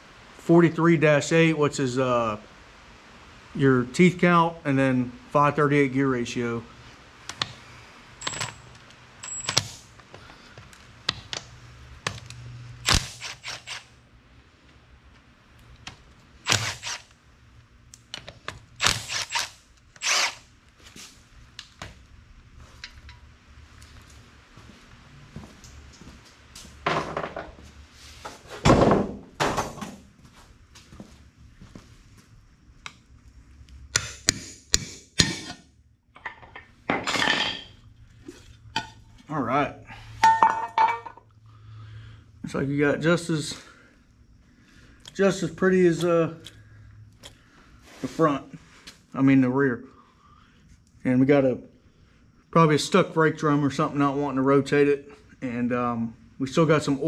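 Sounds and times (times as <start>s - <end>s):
low steady hum: 0.0s - 57.0s
metallic clicks and clinks: 8.2s - 9.8s
cordless power tool whirring: 12.8s - 13.9s, 16.4s - 17.1s, 18.8s - 20.5s.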